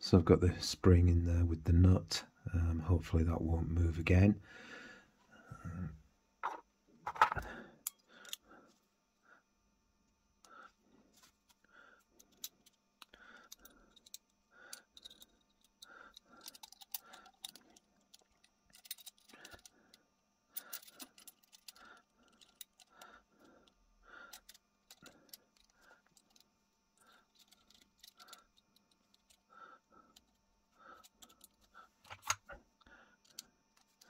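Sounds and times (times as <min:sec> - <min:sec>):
small metallic clicks and clinks: 0:12.2 - 0:19.7, 0:20.6 - 0:23.0, 0:24.3 - 0:29.4.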